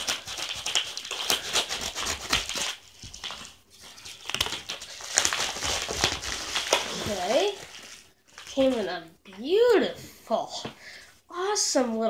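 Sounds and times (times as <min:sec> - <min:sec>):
paper envelope crinkling: 0:00.0 - 0:08.9.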